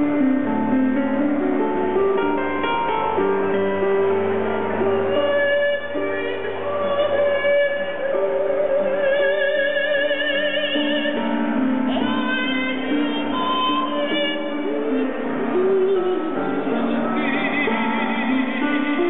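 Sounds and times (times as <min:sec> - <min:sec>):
instrumental backing: 0:00.0 - 0:19.0
woman singing a high note: 0:04.9 - 0:19.0.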